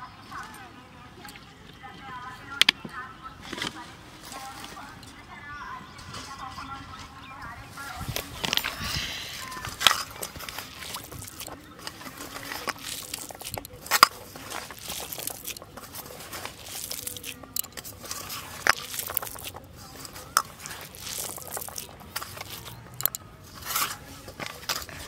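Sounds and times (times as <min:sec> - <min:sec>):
hand squishing rice: 0:08.3 - 0:25.0.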